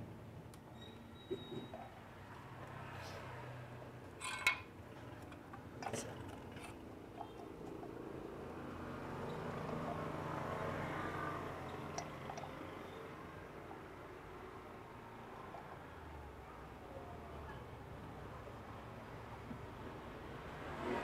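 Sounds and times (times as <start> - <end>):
faint metal scraping: 4.2 - 8.0.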